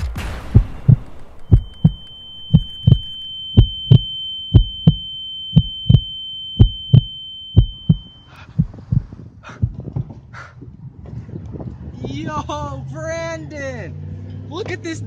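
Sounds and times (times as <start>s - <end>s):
heartbeat double thump: 0.0s - 10.2s
high-pitched ringing tone: 0.7s - 8.4s.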